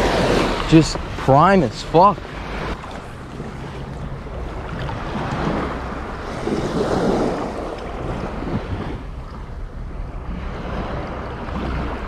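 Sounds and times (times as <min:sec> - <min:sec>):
small waves washing ashore: 0:00.0 - 0:12.0
wind buffeting microphone: 0:00.0 - 0:12.0.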